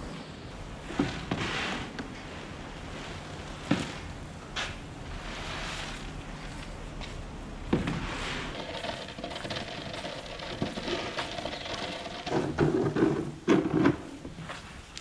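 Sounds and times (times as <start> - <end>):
faint mechanical hum: 0.0 - 15.0
plastic shovel scraping concrete: 7.9 - 14.0.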